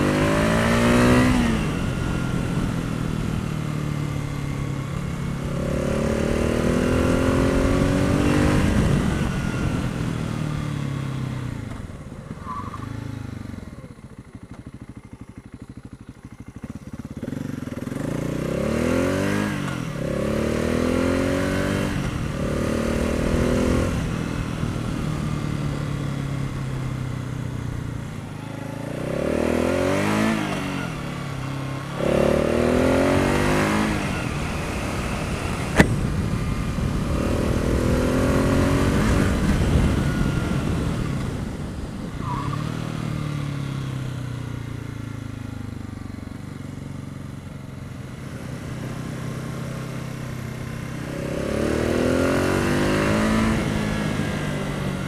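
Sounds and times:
motorcycle engine accelerating: 0.0s - 55.0s
wind rush: 33.8s - 43.0s.

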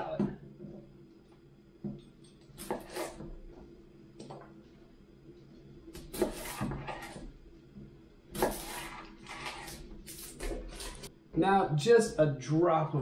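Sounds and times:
knife slicing shallot: 2.6s - 3.2s, 6.0s - 7.2s, 8.4s - 11.1s.

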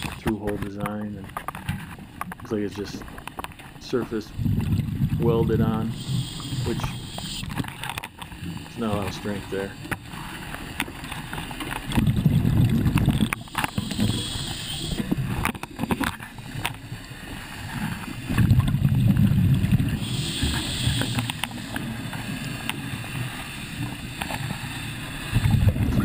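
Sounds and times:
exhaled bubbles underwater: 4.4s - 7.6s, 11.9s - 15.8s, 17.6s - 26.0s
regulator inhale hiss: 5.8s - 7.6s, 13.4s - 15.4s, 19.9s - 25.5s.

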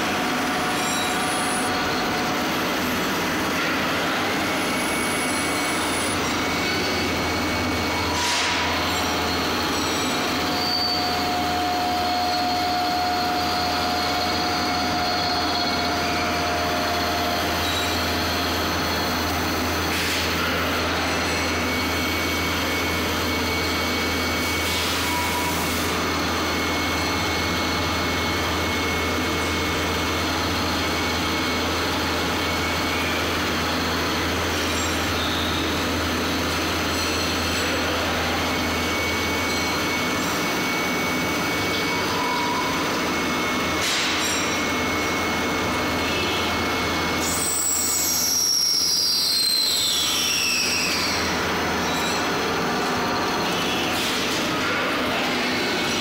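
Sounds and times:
high machine whine: 0.0s - 56.0s
lathe mechanical hum: 0.0s - 56.0s.

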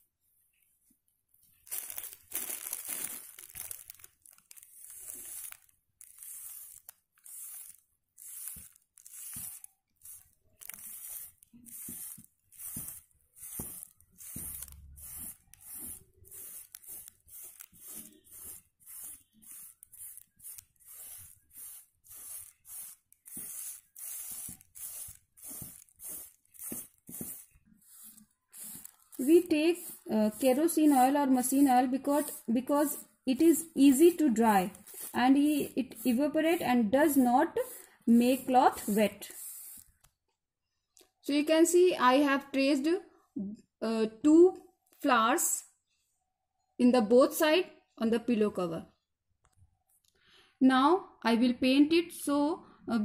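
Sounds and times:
cotton pad rubbing over stencil: 4.6s - 40.0s.

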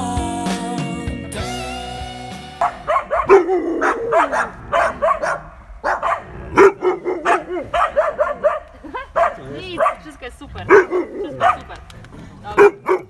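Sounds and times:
dog barking rapidly: 2.6s - 11.8s, 12.6s - 13.0s.

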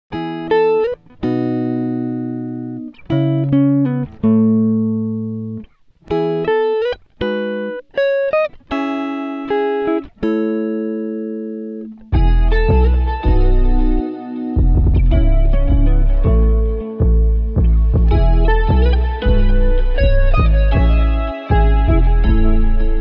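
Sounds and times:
plucked guitar chords: 0.1s - 23.0s
deep bass: 12.2s - 14.0s, 14.6s - 23.0s.

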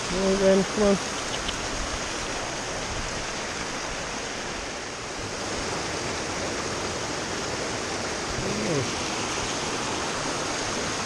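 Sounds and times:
stream tumbling over stones: 0.0s - 11.0s.

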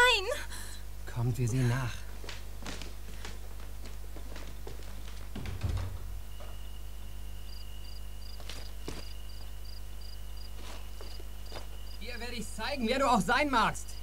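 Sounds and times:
steady low hum: 0.0s - 14.0s
dull thump: 5.3s - 6.8s
crickets chirping: 5.4s - 14.0s.

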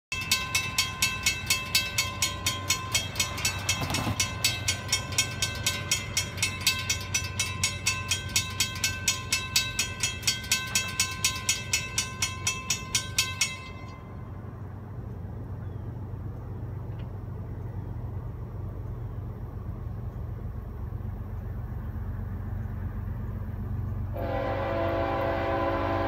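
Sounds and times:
railroad crossing bell ringing: 0.1s - 15.5s, 21.8s - 26.0s.

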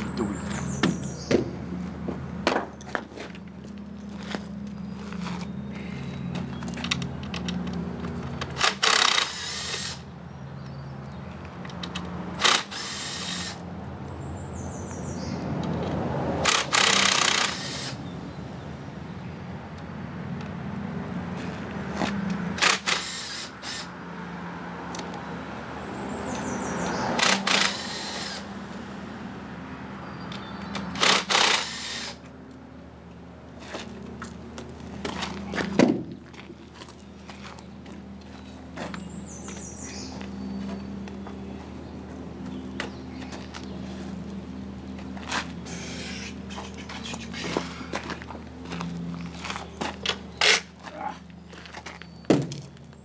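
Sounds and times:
handheld power tool bursts: 8.5s - 10.0s, 12.4s - 13.6s, 16.4s - 18.0s, 22.6s - 23.9s, 27.2s - 28.5s, 31.0s - 32.2s.

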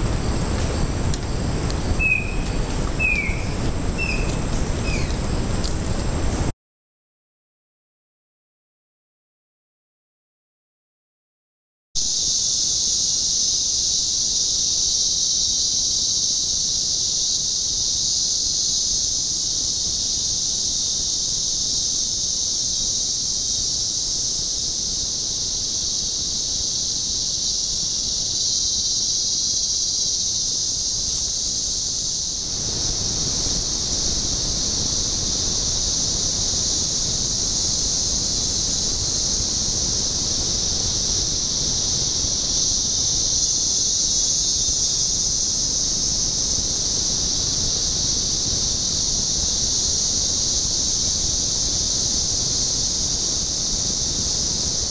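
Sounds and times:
insect chorus drone: 0.0s - 6.5s, 12.0s - 54.9s.

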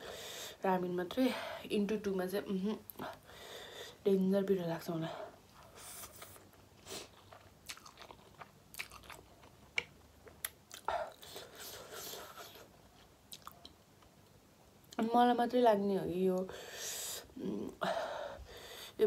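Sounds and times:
person chewing food: 5.6s - 14.1s.

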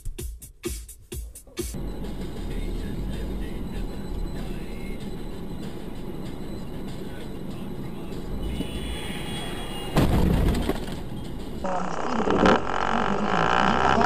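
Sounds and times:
car road and engine noise: 1.7s - 14.0s
voices: 1.8s - 10.0s, 11.2s - 14.0s
sudden loud burst of noise: 9.9s - 11.0s.

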